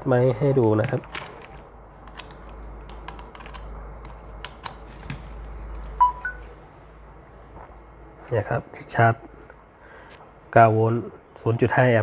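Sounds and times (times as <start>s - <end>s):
two-note electronic beep: 6.0s - 6.4s.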